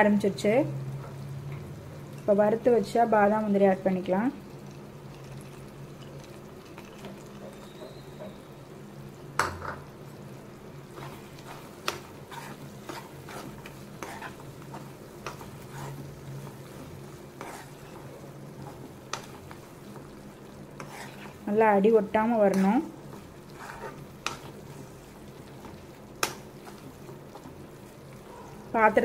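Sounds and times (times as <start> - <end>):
ghee sizzling: 0.0 - 29.0
spoon stirring and clicking on pan: 11.0 - 21.4, 22.4 - 27.7.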